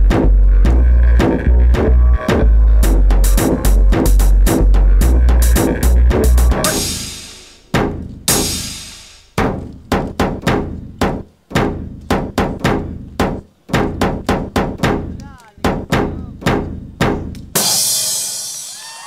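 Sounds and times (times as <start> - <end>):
sharp drum strokes: 2.8 - 18.8
cymbal crash: 6.6 - 7.6, 8.3 - 9.3, 17.6 - 19.0.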